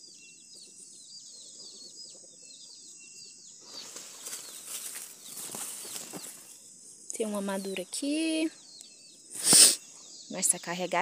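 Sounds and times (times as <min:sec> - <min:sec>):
small birds chirping: 0:00.0 - 0:11.0
leaves rustling: 0:03.6 - 0:08.4.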